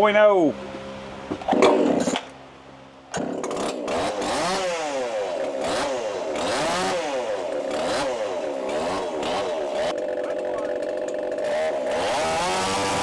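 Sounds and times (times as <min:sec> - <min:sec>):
chainsaw engine running: 0:03.2 - 0:13.0.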